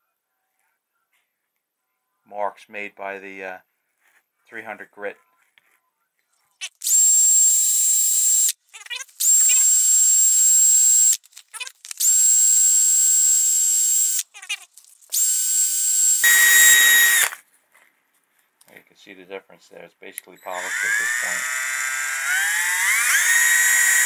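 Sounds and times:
cordless drill whine: 6.8 - 8.6, 9.2 - 11.2, 12.0 - 14.2, 15.1 - 17.4, 20.4 - 24.0.

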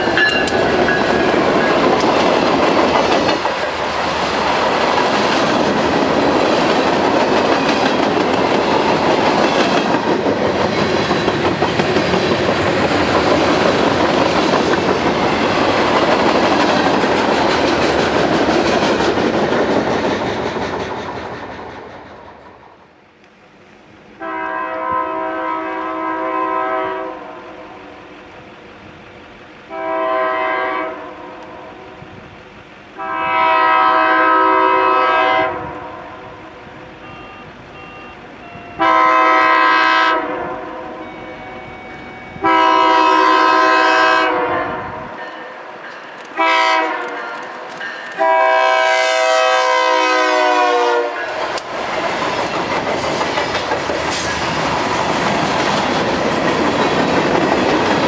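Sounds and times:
train engine and wheel rush: 0.0 - 58.0
locomotive air horn blasts: 24.2 - 27.7, 29.7 - 31.3, 33.0 - 36.3, 36.9 - 45.2, 46.4 - 47.4, 48.2 - 51.3.

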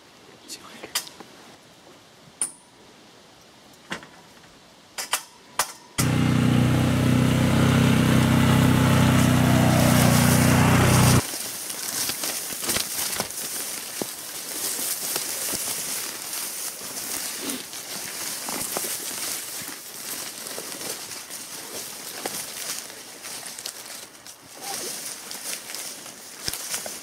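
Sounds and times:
atv engine running: 6.0 - 11.2
footsteps through brush and leaves: 9.0 - 27.0.

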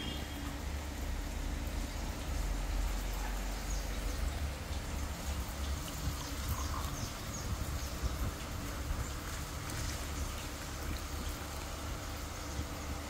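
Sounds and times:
small birds chirping: 5.9 - 8.4.

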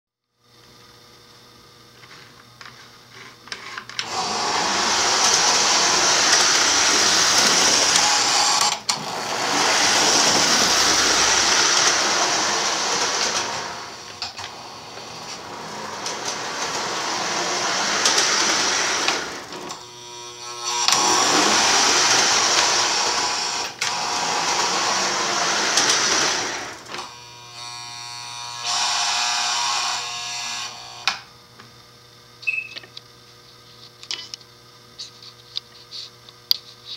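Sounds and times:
toy train running noise: 3.8 - 31.2
buzzing hum: 3.9 - 26.0, 26.6 - 36.1.

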